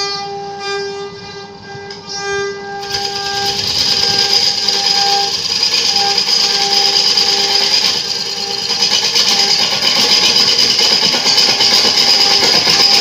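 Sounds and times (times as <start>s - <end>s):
faint lathe tone: 1.2s - 13.0s
gouge scraping spinning wood: 2.8s - 13.0s.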